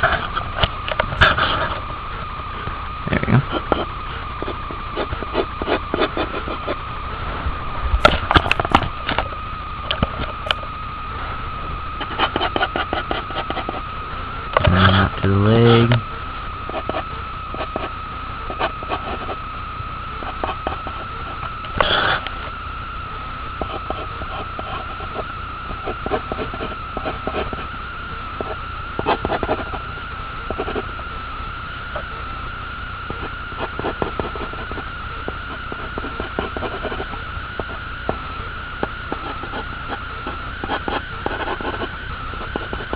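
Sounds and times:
high electrical whine: 0.0 - 42.9
low hum: 0.0 - 42.9
pencil scratching on paper: 3.5 - 6.8, 12.0 - 13.8, 40.6 - 42.9.

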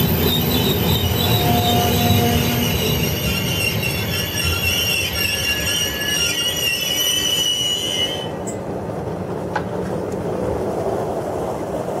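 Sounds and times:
high steady squeal: 0.0 - 8.6
train wheels rumbling on rails: 0.0 - 12.0.

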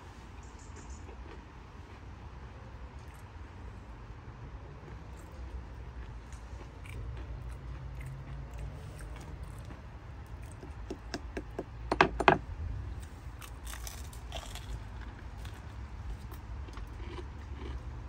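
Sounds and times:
low background rumble: 0.0 - 18.0
crunching bites into fried chicken: 13.3 - 18.0.

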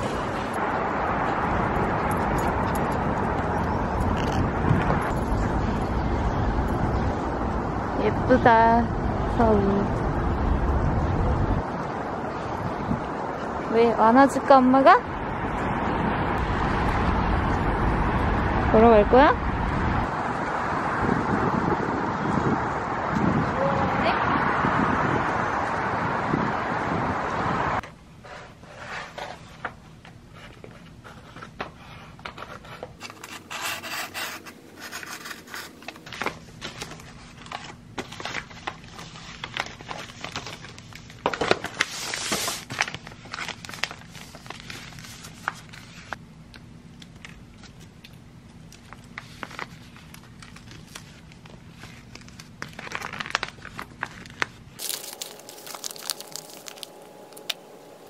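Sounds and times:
wind on microphone: 0.0 - 13.7, 15.1 - 27.8
traffic noise: 0.0 - 58.0
wrapping paper rustling: 33.0 - 46.2, 48.8 - 58.0.

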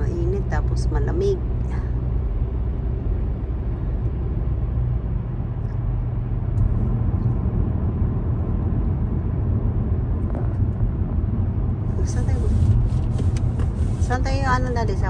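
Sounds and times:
car cabin road noise: 0.0 - 15.0.

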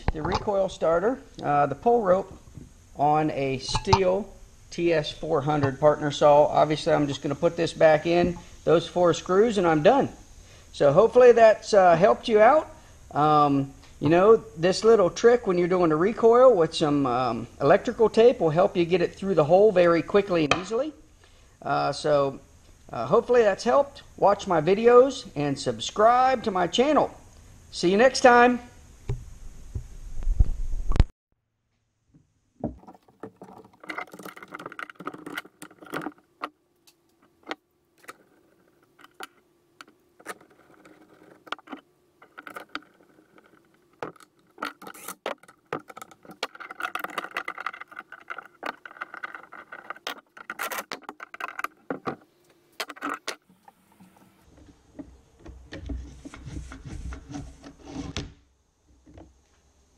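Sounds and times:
starter rope pulled out: 40.2 - 52.2
tools clicking and rattling: 40.2 - 52.2.

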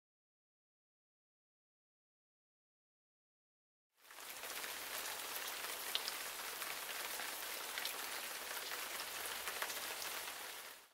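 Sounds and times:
rain falling: 4.0 - 10.9
rain drop ticks: 5.7 - 6.2.

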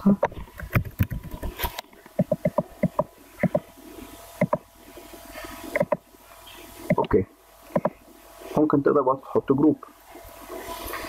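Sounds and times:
keyboard typing: 2.2 - 3.6, 4.4 - 4.6, 5.8 - 6.0, 7.7 - 8.0
mouse clicks: 2.2 - 3.6, 4.4 - 4.6, 5.8 - 6.0, 7.7 - 8.0.

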